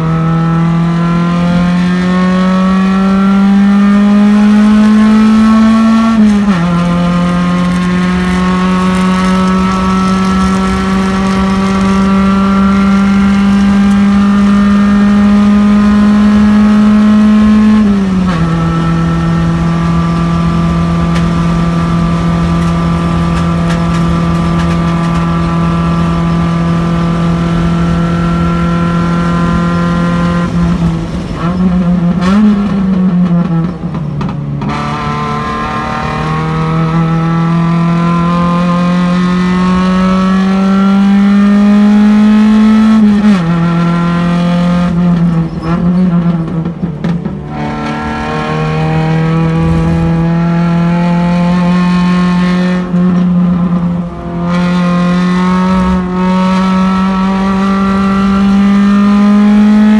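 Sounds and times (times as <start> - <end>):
race car engine at speed: 0.0 - 59.9.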